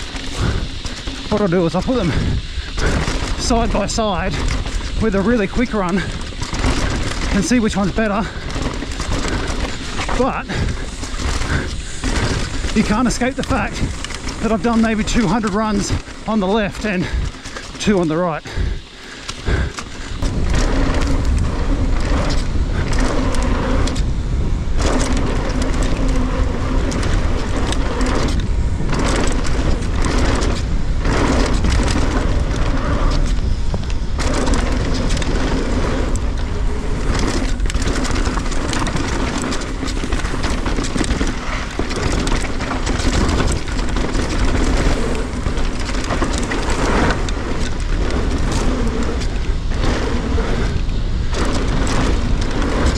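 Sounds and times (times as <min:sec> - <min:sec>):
bike tyres clattering over rocks: 0:00.0 - 0:52.9
low hum: 0:00.0 - 0:52.9
wind buffeting microphone: 0:00.0 - 0:52.9.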